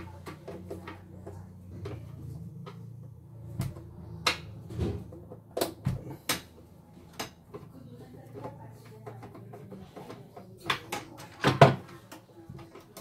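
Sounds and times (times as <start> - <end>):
steady low hum: 0.0 - 10.3.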